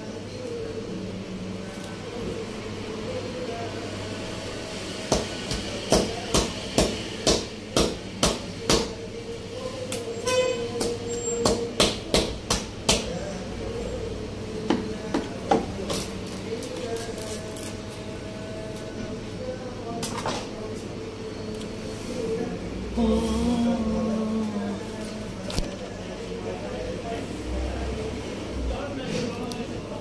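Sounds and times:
steady hum: 0:21.0 - 0:25.8.

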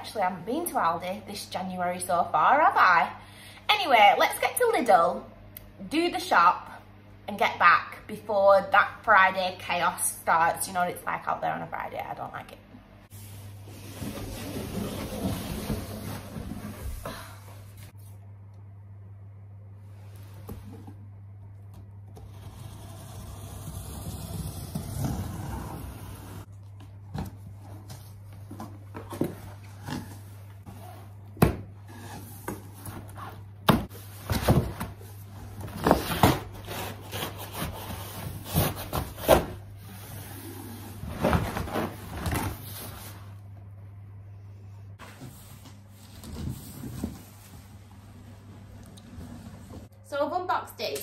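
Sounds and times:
low steady hum: 0:00.0 - 0:51.0.

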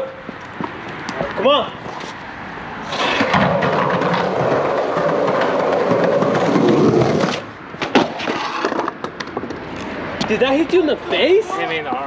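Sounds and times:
skateboard wheels rolling on pavement: 0:00.0 - 0:12.0.

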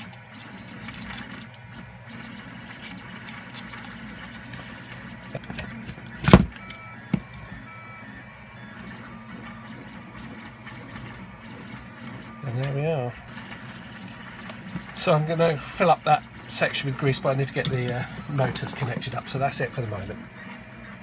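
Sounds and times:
steady low hum: 0:00.0 - 0:21.0
plastic parts clicking and knocking: 0:05.3 - 0:07.5.

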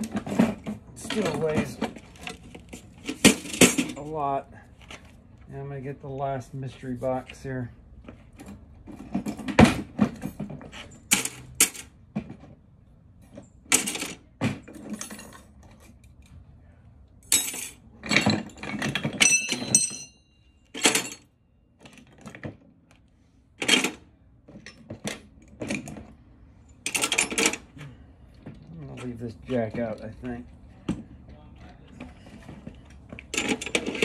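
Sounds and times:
metal hand tools clinking: 0:17.3 - 0:21.3.

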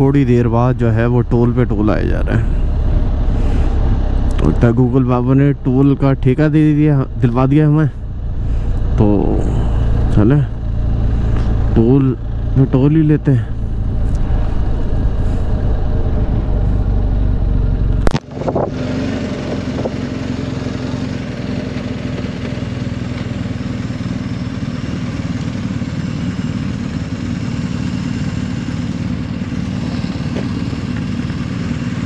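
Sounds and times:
low wind rumble: 0:00.0 - 0:21.6
motorcycle engine running: 0:00.0 - 0:32.0.

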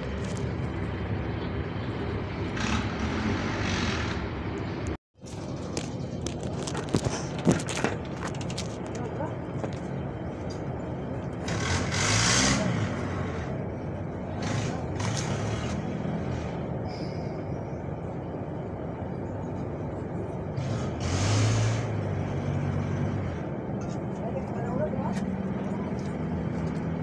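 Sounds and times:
loud vehicles passing: 0:00.0 - 0:27.0
road traffic: 0:00.0 - 0:27.0.

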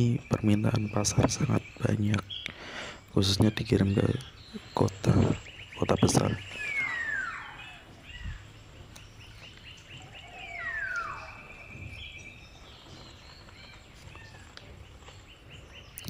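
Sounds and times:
high bird chirps: 0:00.0 - 0:16.0
bird whistle gliding down: 0:06.3 - 0:08.4, 0:10.0 - 0:12.2.

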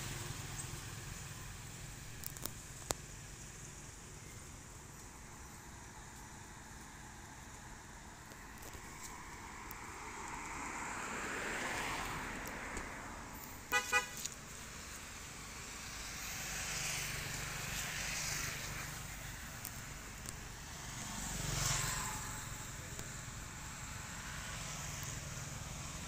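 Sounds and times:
vehicles passing: 0:00.0 - 0:26.0
car horn toots: 0:13.7 - 0:14.2.

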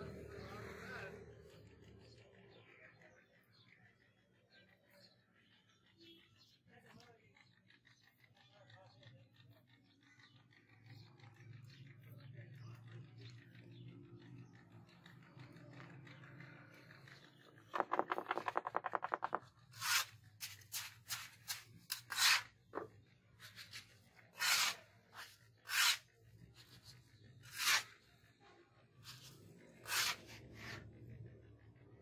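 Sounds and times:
quick rattling: 0:16.8 - 0:19.8
cement mix scraping: 0:17.6 - 0:28.1, 0:29.0 - 0:30.9.

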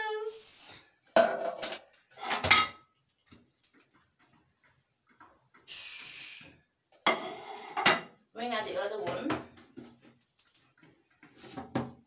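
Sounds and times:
metal cake pans clattering: 0:01.2 - 0:02.9.

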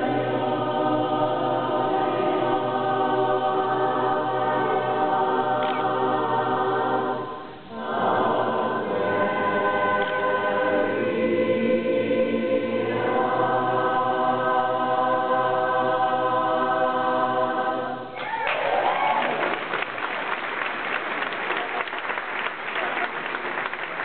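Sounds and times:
women's chorus singing a cappella: 0:00.0 - 0:18.2
applause: 0:18.2 - 0:24.0.

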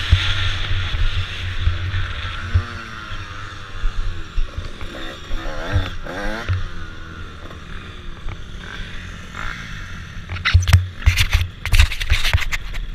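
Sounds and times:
dirt bike engine running: 0:00.0 - 0:12.9
camera knocks and scrapes: 0:10.3 - 0:12.9.

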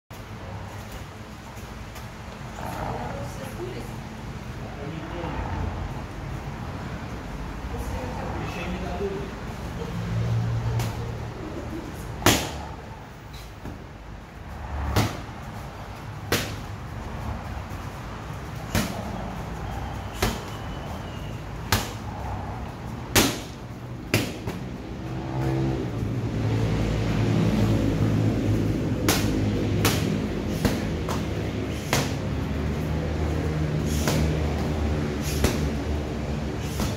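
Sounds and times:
boxing gloves slapping mitts: 0:12.0 - 0:12.8, 0:14.7 - 0:16.9, 0:17.6 - 0:21.0, 0:21.6 - 0:22.4, 0:23.0 - 0:25.8, 0:27.6 - 0:36.9.

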